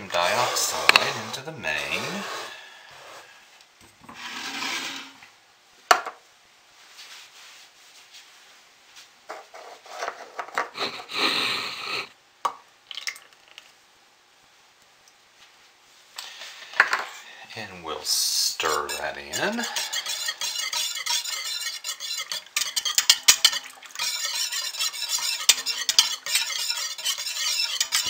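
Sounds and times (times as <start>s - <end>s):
scraping on stone countertop: 0.2s - 3.3s, 4.1s - 5.2s, 9.3s - 10.7s, 18.6s - 28.0s.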